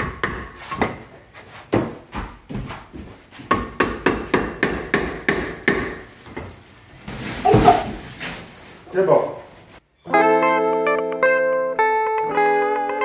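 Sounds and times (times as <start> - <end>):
hammer tapping: 3.5 - 6.1.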